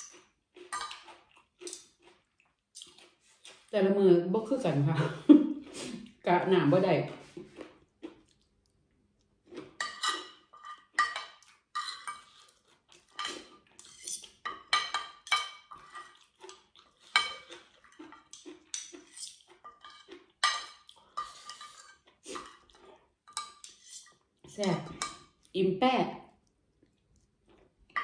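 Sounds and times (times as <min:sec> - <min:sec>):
cutlery scraping a ceramic plate: 0:00.0 - 0:01.9, 0:09.7 - 0:25.4.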